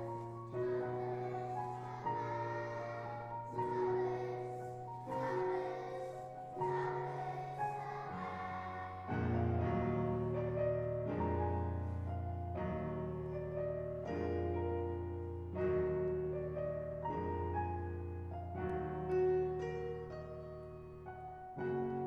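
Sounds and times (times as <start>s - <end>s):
children's choir singing: 0.0s - 11.5s
piano accompaniment: 0.0s - 22.0s.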